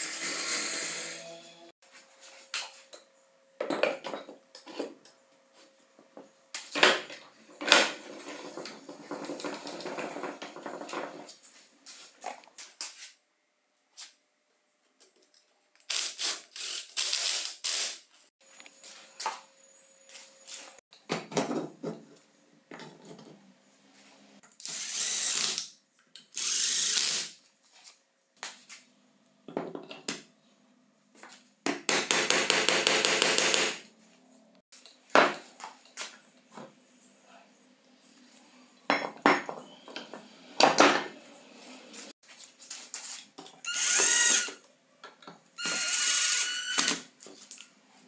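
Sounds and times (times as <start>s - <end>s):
power screwdriver driving screws: 24.6s - 25.7s, 26.3s - 27.3s, 43.7s - 44.6s, 45.6s - 47.0s.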